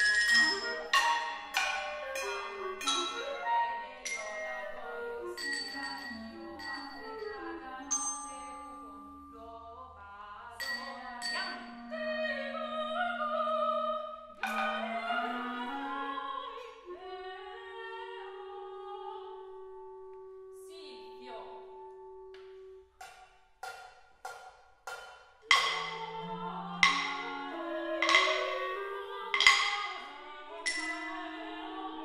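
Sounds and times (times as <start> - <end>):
glasses struck with a spoon: 0.0 - 3.3, 4.0 - 4.7, 5.4 - 8.7, 10.6 - 11.9, 23.0 - 27.4, 28.0 - 31.4
clarinet: 0.0 - 10.4, 11.5 - 23.0, 25.7 - 32.0
sopranos singing: 0.0 - 21.9, 25.5 - 32.0.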